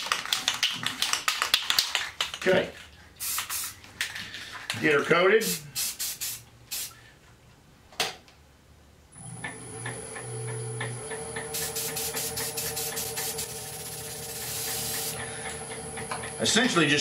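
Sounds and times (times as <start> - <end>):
aerosol spray can hissing: 3.2 - 3.8, 5.4 - 7.0, 11.5 - 15.2
spray hiss with quick ticks: 3.2 - 3.8, 5.4 - 7.0, 11.5 - 15.2
wood lathe humming: 9.2 - 17.0.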